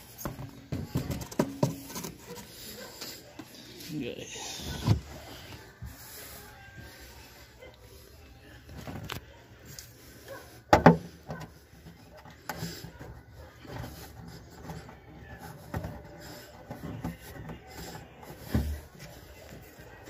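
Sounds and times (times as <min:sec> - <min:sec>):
knocks and handling sounds: 0:00.0 - 0:03.9, 0:10.3 - 0:20.0.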